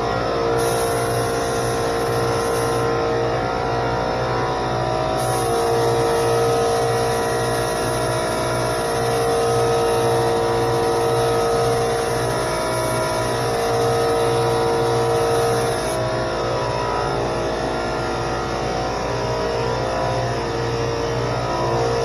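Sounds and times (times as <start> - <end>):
air compressor running: 0.0 - 22.0
spray gun air hissing: 0.6 - 2.9, 5.2 - 16.0.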